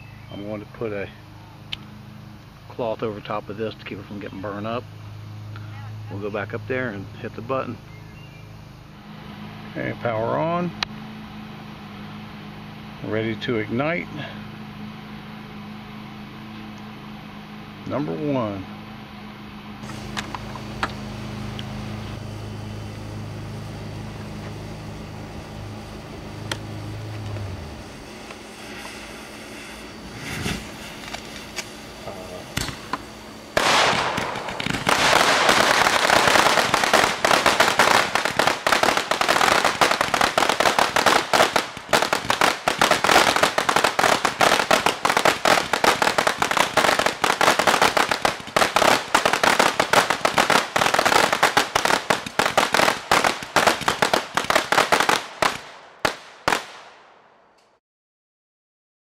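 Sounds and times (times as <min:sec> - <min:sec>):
firework fuse hissing: 0:19.7 - 0:57.0
rapid loud firework bangs: 0:27.8 - 0:57.1.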